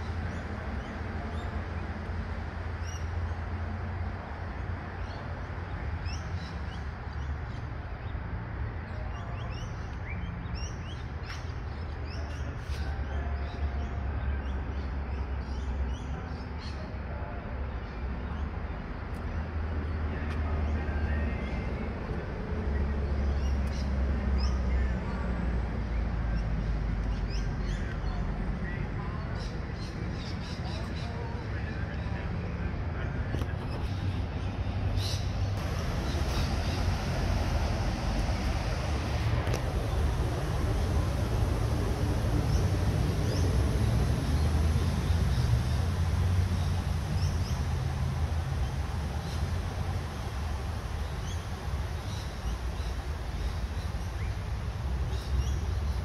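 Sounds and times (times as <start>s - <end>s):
birds chirping: 25.8s - 56.0s
steady low rumble: 31.5s - 56.0s.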